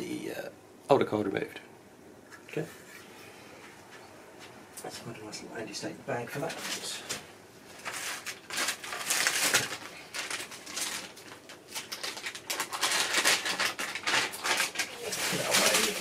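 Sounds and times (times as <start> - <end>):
plastic bag crinkling: 7.7 - 16.0.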